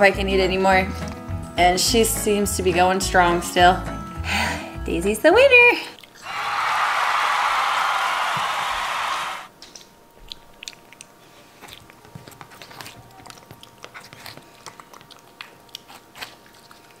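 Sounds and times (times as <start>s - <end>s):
pig chewing watermelon: 10.2s - 17.0s.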